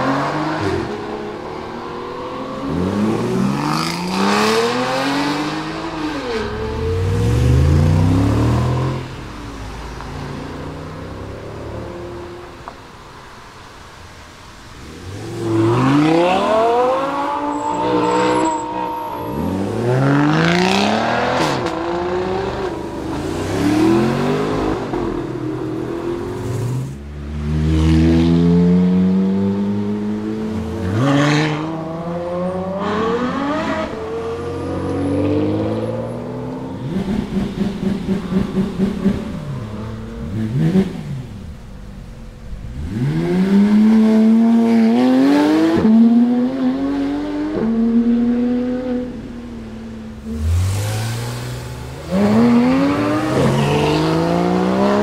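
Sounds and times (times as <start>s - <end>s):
sports cars accelerating hard: 14.8s - 41.6s, 42.6s - 55.0s.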